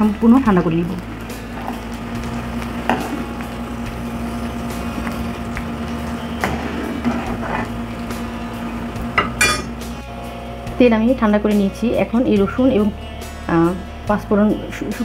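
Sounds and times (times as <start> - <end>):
oil sizzling in a frying pan: 0.0 - 10.7
mechanical hum: 1.0 - 10.8
metal ladle scraping: 9.2 - 9.8.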